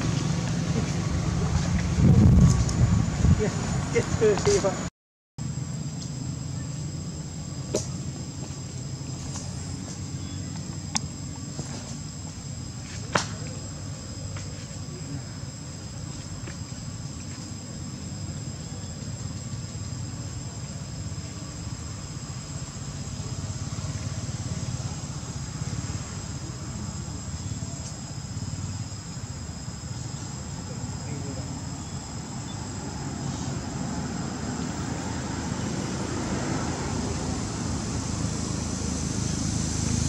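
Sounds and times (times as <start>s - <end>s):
low rumble: 0.0s - 4.9s
insects droning: 0.0s - 40.0s.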